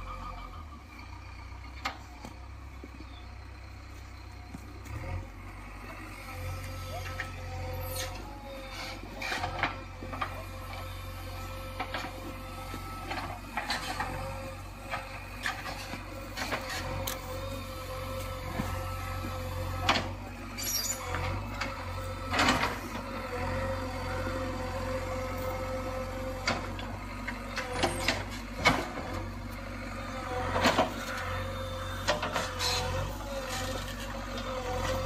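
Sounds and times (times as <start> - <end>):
diesel engine running: 0.0 - 35.0
metal clanks from digger bucket: 7.0 - 17.5, 18.3 - 23.1, 26.4 - 29.3, 30.4 - 35.0.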